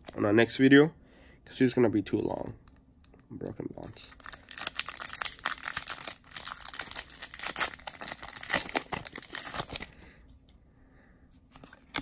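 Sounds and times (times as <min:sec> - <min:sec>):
foil wrapper crinkling: 0:04.0 - 0:10.0.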